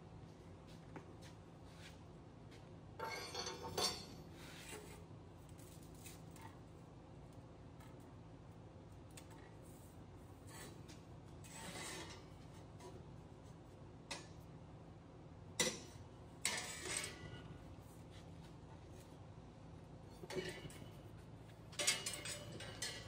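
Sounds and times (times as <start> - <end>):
sheet metal scraping on steel table: 11.4 - 12.6, 16.4 - 17.5.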